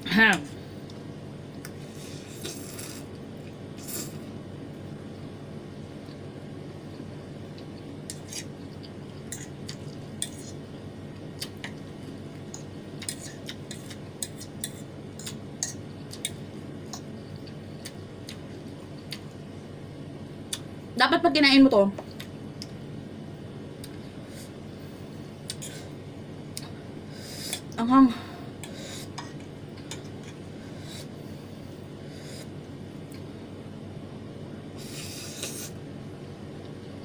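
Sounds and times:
chewing: 0:06.9 - 0:10.6.

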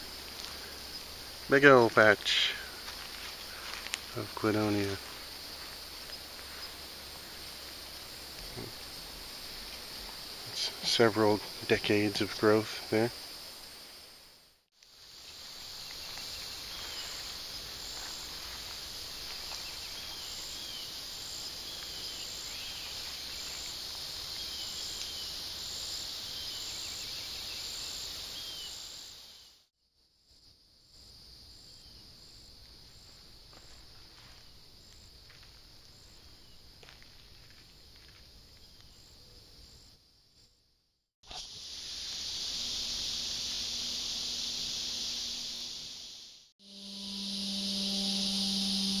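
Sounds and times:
insects buzzing: 0:00.0 - 0:29.6, 0:41.2 - 0:49.0
insect chirps: 0:00.0 - 0:49.0.

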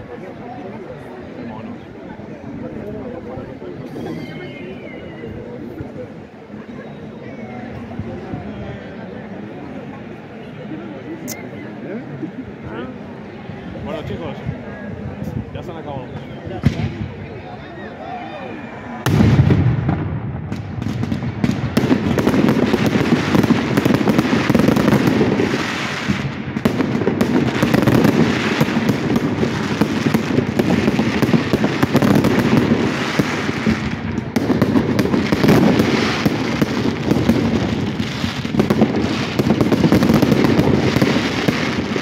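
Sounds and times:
fireworks bangs: 0:16.5 - 0:17.2, 0:19.0 - 0:42.0.

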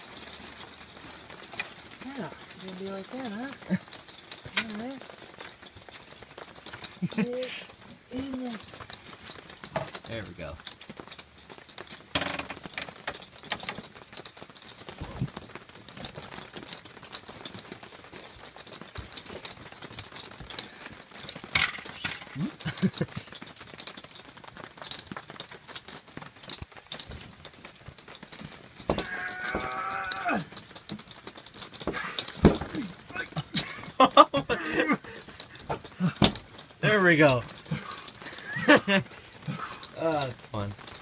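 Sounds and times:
poles knocking and clicking: 0:26.6 - 0:29.8, 0:30.6 - 0:33.1.

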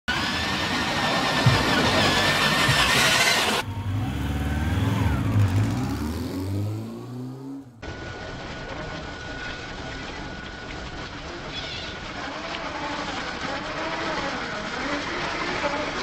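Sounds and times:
tyres rolling over gravel: 0:00.1 - 0:04.6, 0:07.8 - 0:16.0
electric motor whining: 0:00.1 - 0:06.2
revving engine sound effect: 0:00.1 - 0:07.9.

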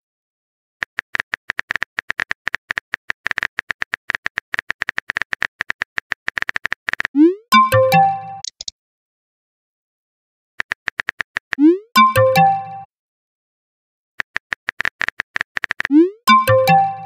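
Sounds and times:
message sent chime: 0:07.2 - 0:08.4, 0:11.6 - 0:12.9, 0:15.9 - 0:17.0
keyboard typing taps: 0:08.0 - 0:08.7.

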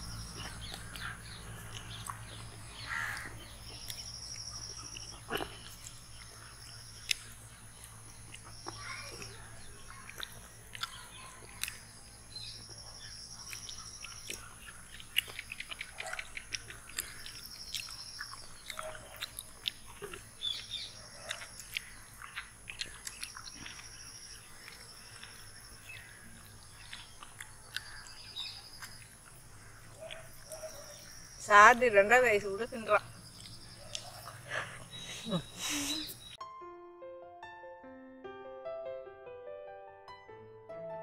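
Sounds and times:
people chewing ice pops: 0:00.1 - 0:31.3, 0:33.0 - 0:36.3
wet mouth clicks and smacks: 0:09.9 - 0:11.8, 0:13.5 - 0:23.9, 0:33.4 - 0:34.4.

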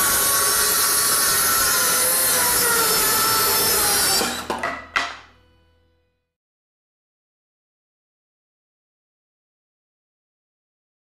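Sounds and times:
saw winding down: 0:00.0 - 0:04.7
circular saw cutting plywood: 0:00.0 - 0:05.6
wood pieces knocking on floor: 0:04.2 - 0:05.3.

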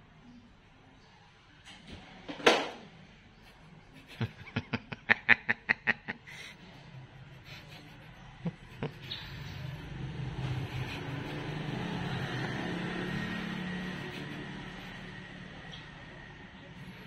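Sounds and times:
person snickering: 0:03.9 - 0:06.6, 0:07.3 - 0:15.5.

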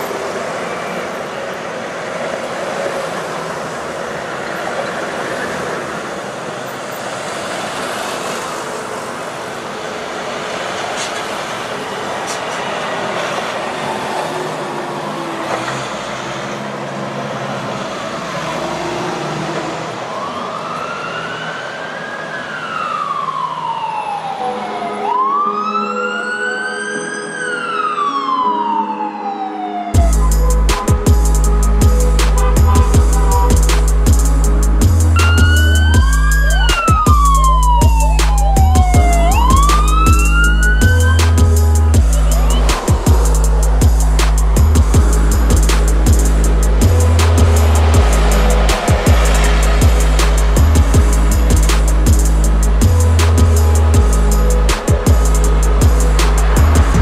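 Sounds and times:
vehicles driving past: 0:00.0 - 0:57.0
siren wailing: 0:12.8 - 0:16.8, 0:17.9 - 0:57.0.

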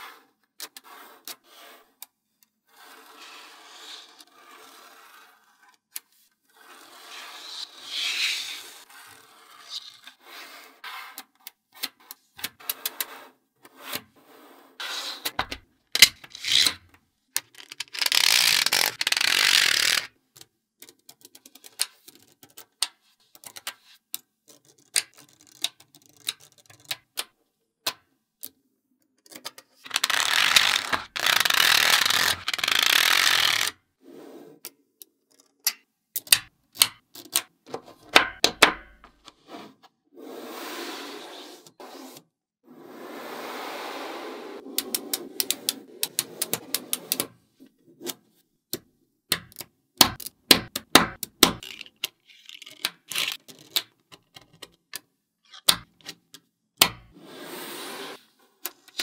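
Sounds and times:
magnet balls rattling and sliding: 0:06.6 - 0:11.3, 0:12.4 - 0:20.1, 0:29.8 - 0:33.8, 0:42.8 - 0:47.3.

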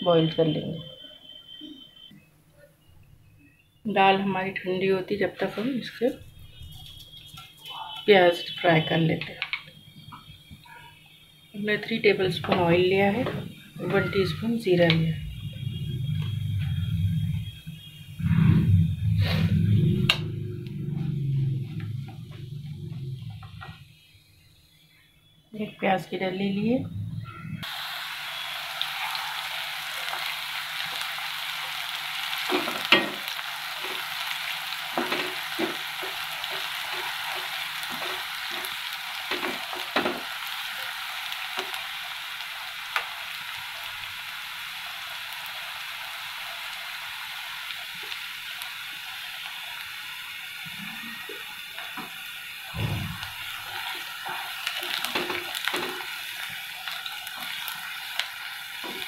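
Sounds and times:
onion sizzling in hot oil: 0:11.4 - 0:23.4, 0:27.6 - 0:59.0
spatula scraping and knocking pan: 0:35.0 - 0:40.2.

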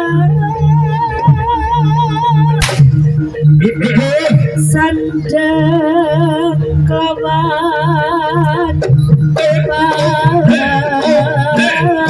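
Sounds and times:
sharp cracks: 0:02.6 - 0:03.1.

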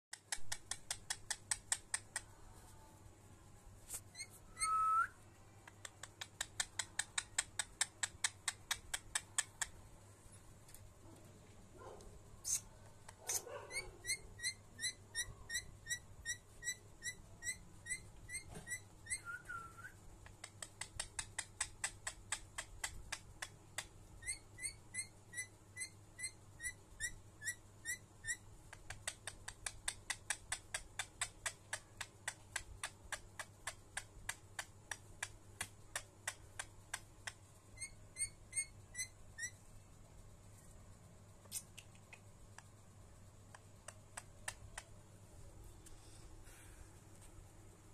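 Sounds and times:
parakeet chirping: 0:04.1 - 0:04.8, 0:06.2 - 0:09.8, 0:13.2 - 0:19.5, 0:20.4 - 0:39.6.

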